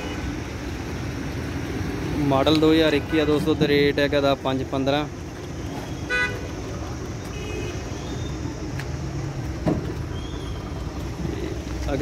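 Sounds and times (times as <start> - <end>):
engines and traffic rumble: 0.0 - 12.0
vehicle horn toot: 6.1 - 6.4.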